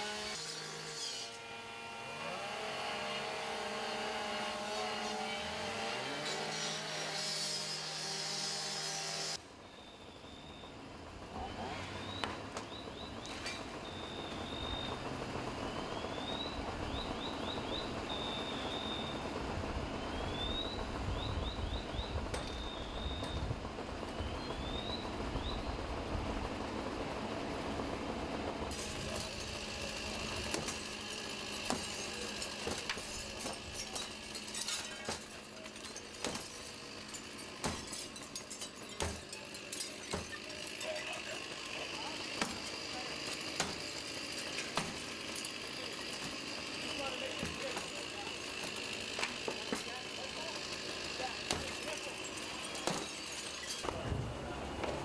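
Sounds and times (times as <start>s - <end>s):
cut-off saw cutting metal: 0.0s - 9.4s, 28.7s - 54.0s
low engine rumble: 10.1s - 44.0s, 53.8s - 55.0s.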